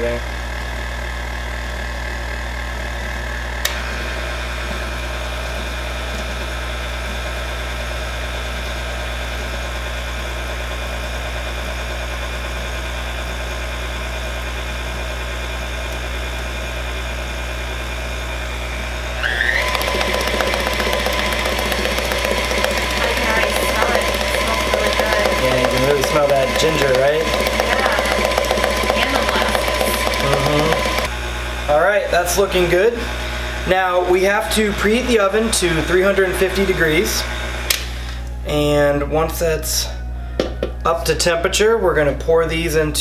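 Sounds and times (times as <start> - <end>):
stand mixer motor humming: 0.0 - 38.4
mixer click: 19.3 - 31.1.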